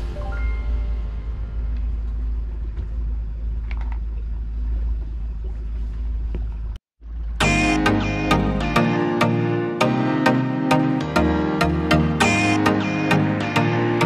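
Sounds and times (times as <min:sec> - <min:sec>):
music: 0:00.0 - 0:01.8, 0:07.4 - 0:14.0
motorboat engine rumbling: 0:01.0 - 0:07.4.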